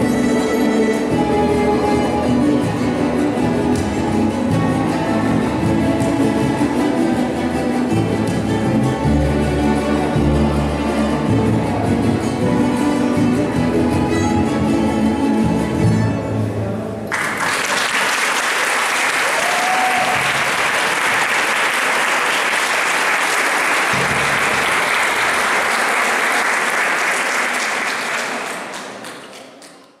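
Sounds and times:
plucked string ensemble chord: 0.0s - 16.7s
audience applause: 17.1s - 29.8s.

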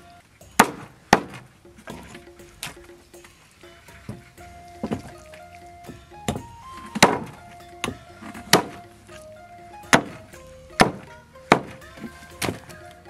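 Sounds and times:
background music: 0.0s - 13.0s
cleaver chopping on wooden block: 0.6s - 2.8s, 9.9s - 10.2s, 10.8s - 12.6s.

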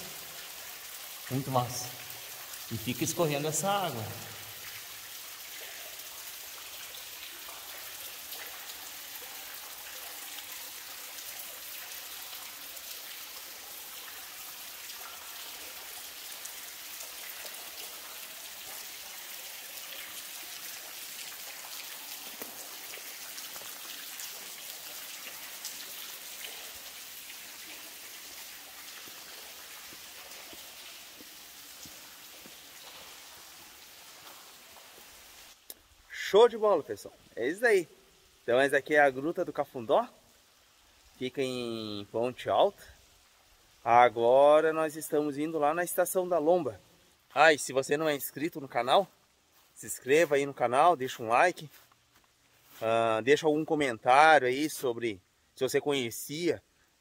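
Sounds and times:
waterfall spray pattering on rock: 19.8s - 35.9s, 49.5s - 53.4s.

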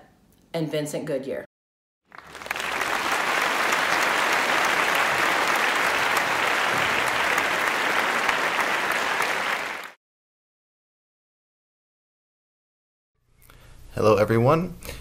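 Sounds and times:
crowd applauding: 2.1s - 10.0s.

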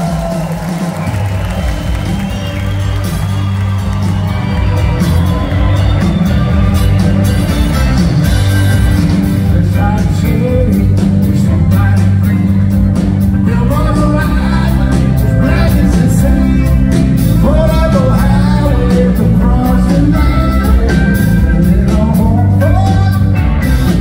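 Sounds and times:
live rock band playing: 0.0s - 24.0s
man singing: 9.3s - 23.6s.

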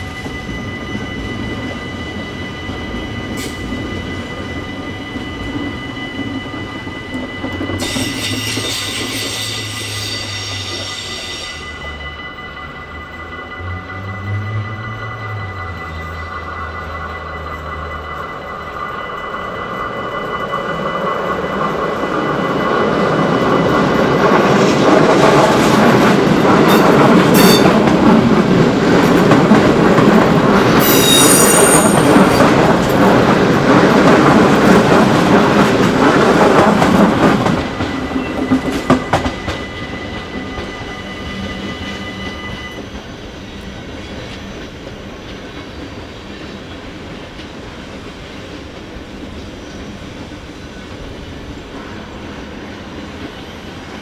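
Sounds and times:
level-crossing warning bell: 0.0s - 54.0s
train wheels on rails: 0.0s - 54.0s
sharp wheel squeal: 7.3s - 12.1s, 30.8s - 32.4s, 39.6s - 43.0s.

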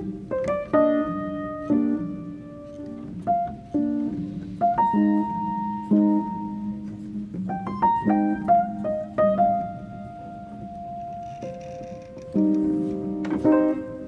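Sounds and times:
piano notes and chords: 0.0s - 14.0s.

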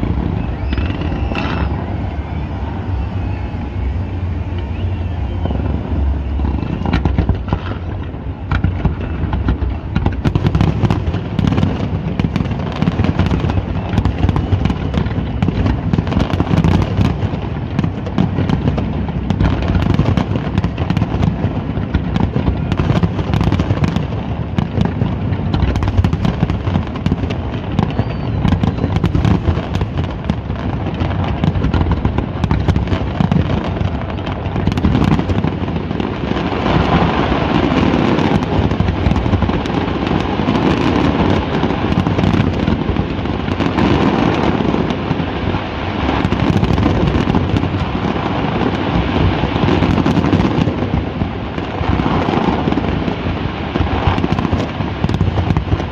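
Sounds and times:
low rumble: 0.0s - 12.8s
fireworks bangs and crackling: 0.0s - 55.9s.

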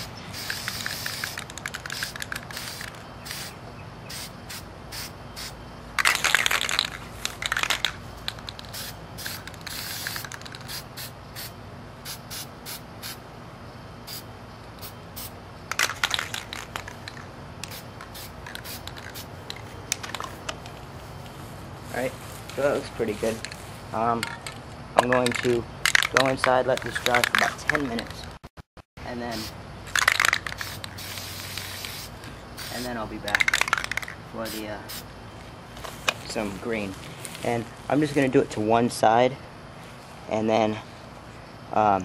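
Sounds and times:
aerosol spray can hissing: 0.0s - 5.6s, 6.5s - 13.2s, 17.6s - 19.6s, 29.3s - 35.0s
spray can shaking clicks: 0.4s - 3.5s, 6.0s - 10.8s, 15.7s - 20.8s, 24.2s - 28.3s, 29.9s - 34.2s.

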